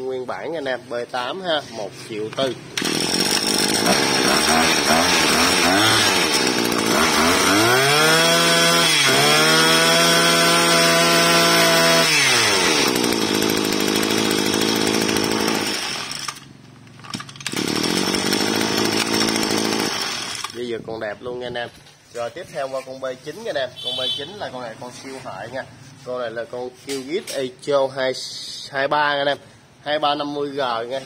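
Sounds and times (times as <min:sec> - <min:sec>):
brush cutter engine revving: 0:01.7 - 0:20.8.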